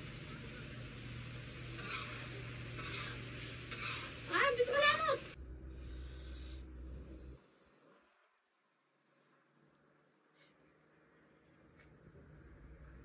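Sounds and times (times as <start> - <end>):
food sizzling in pot: 0.0 - 5.4
utensil stirring and scraping: 1.7 - 5.1.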